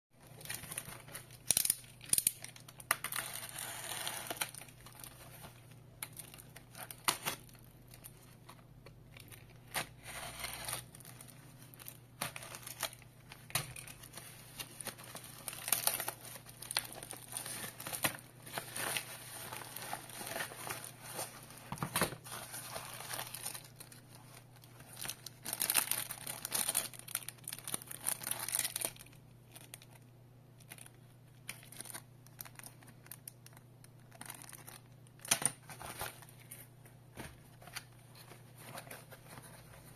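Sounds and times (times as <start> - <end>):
plastic packaging crinkling and tearing: 0.2 - 36.5.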